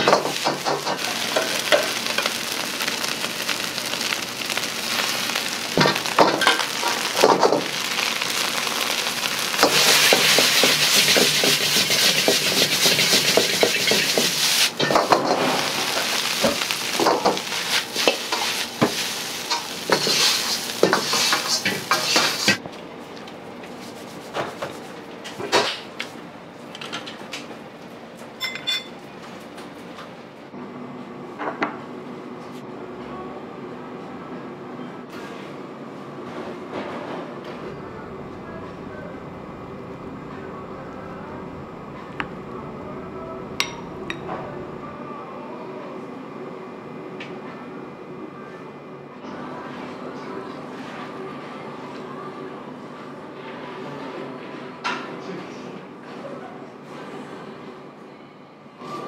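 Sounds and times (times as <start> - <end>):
rice sizzling in a wok: 0.0 - 22.6
ladle scraping and clanking on wok: 9.6 - 22.6.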